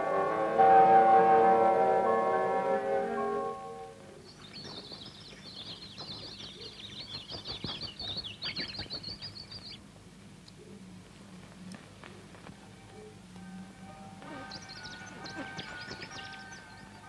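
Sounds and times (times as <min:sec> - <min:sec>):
songbirds twittering: 0:04.1 - 0:10.9, 0:12.0 - 0:17.0.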